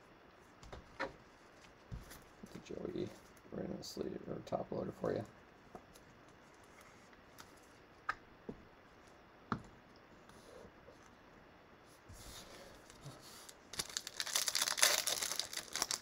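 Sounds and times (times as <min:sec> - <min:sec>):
wrapper crinkling open: 0:12.7 - 0:16.0.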